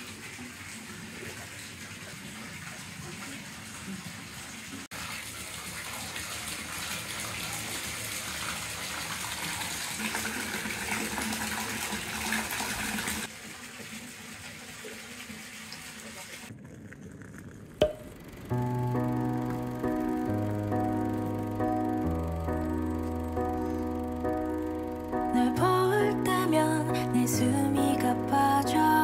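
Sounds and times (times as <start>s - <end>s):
water pouring into a tub: 0.0s - 17.8s.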